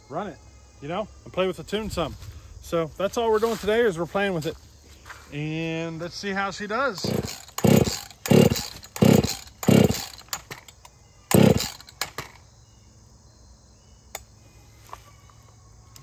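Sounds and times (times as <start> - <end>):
chainsaw pull-starting: 6.9 - 12.4.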